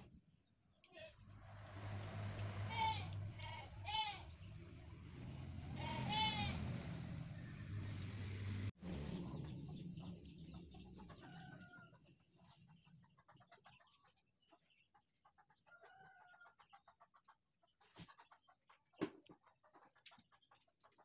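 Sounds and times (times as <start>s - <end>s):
farm animal calls: 2.4s - 7.9s.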